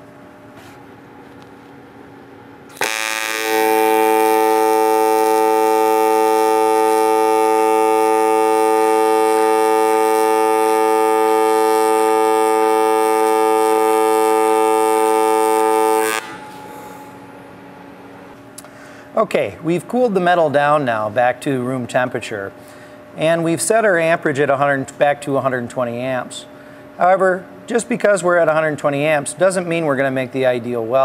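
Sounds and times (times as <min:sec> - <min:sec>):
welding arc buzzing: 0:02.7 - 0:18.4.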